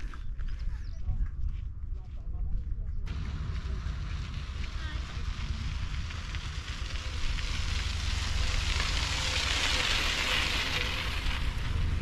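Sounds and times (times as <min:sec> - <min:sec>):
steady low rumble: 0:00.0 - 0:12.0
bicycle tyres crunching on gravel: 0:03.1 - 0:12.0.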